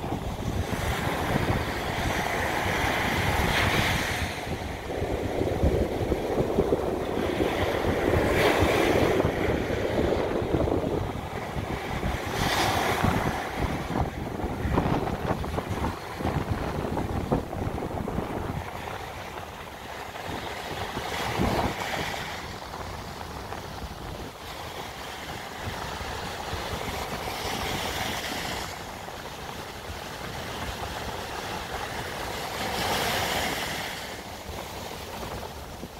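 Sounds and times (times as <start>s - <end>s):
waves breaking on sand: 0.0s - 35.9s.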